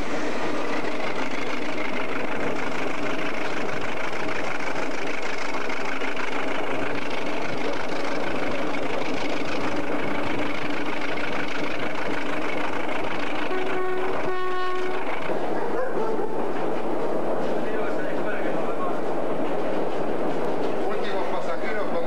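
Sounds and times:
train rolling noise: 0.0s - 22.0s
locomotive horn blasts: 13.4s - 15.2s.

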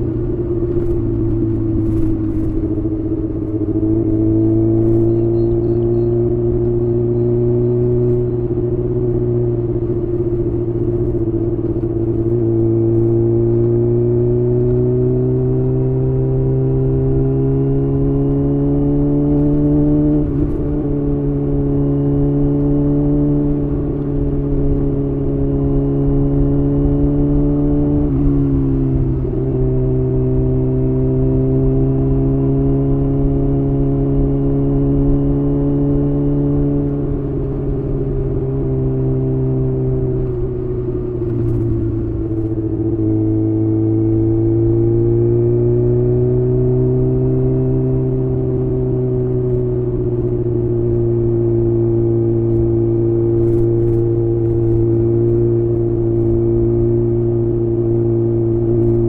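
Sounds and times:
motorcycle engine exhaust: 0.0s - 13.5s.

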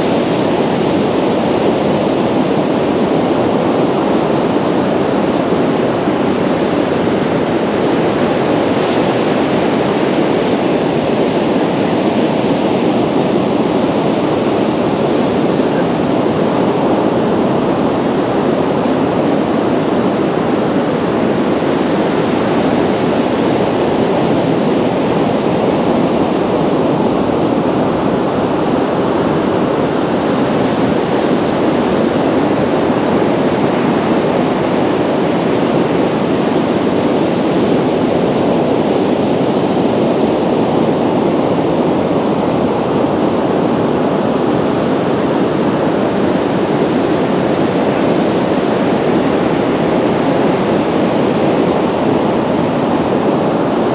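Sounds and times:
wind on microphone: 0.0s - 53.9s.

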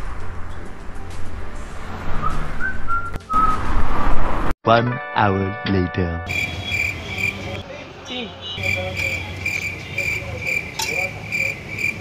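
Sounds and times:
cricket chirping: 6.3s - 7.6s, 8.6s - 12.0s.

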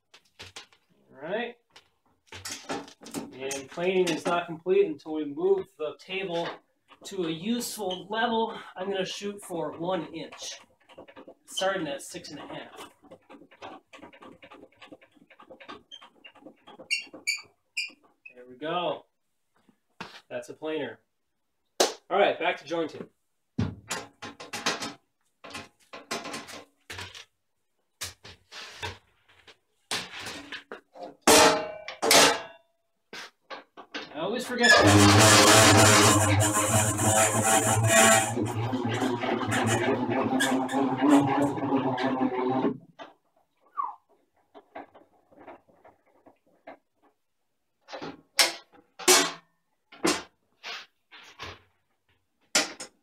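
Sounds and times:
hose and hood clattering: 2.3s - 4.5s
brief squeak: 43.7s - 44.0s.

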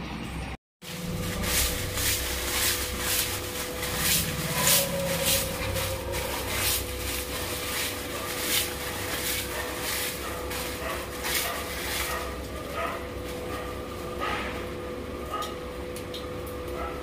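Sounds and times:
steady low hum: 0.4s - 17.0s
plastic packet crackling: 0.9s - 13.8s.

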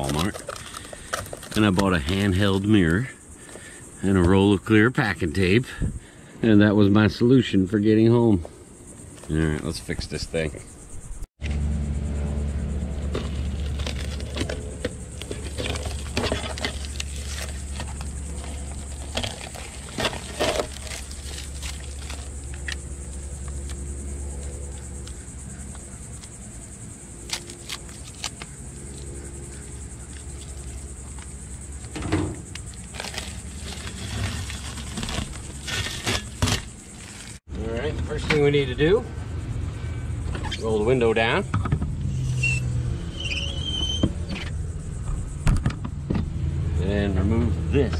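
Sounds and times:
packing tape crackling and ripping: 13.1s - 22.9s, 27.2s - 29.0s, 32.5s - 37.4s.

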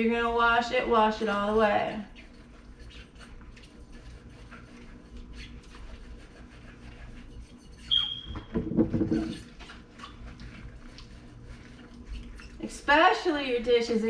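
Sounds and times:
scrubbing dishes with gloves: 1.9s - 14.0s
dishes clattering: 8.3s - 9.5s.

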